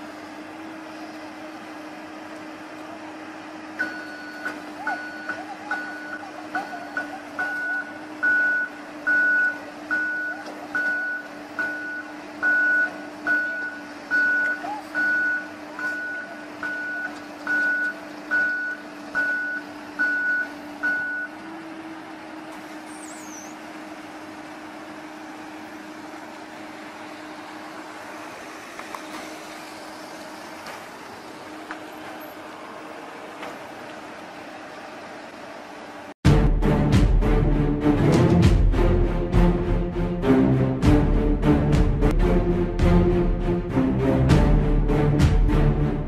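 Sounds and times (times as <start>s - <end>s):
excavator engine running: 0.0s - 46.0s
travel alarm beeping: 3.8s - 21.4s.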